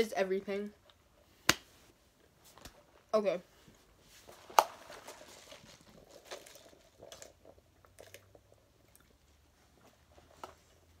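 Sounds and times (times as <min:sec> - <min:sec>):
person chewing and crunching food: 0:04.3 - 0:10.4.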